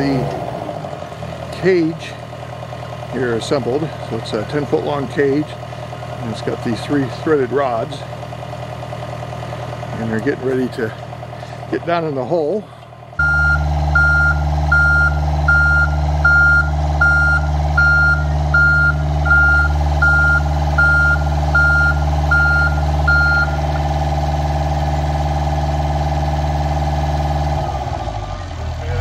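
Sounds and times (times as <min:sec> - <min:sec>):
heavy machine engine running: 0:00.0 - 0:29.0
backup alarm beeping: 0:13.2 - 0:23.7.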